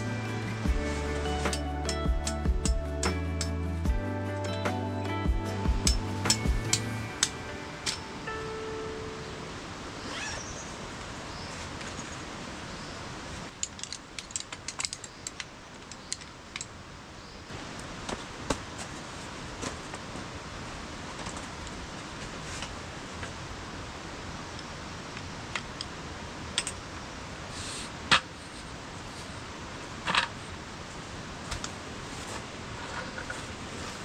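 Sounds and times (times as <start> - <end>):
steady hiss: 0.0 - 34.0
objects clicking and knocking: 13.5 - 16.7.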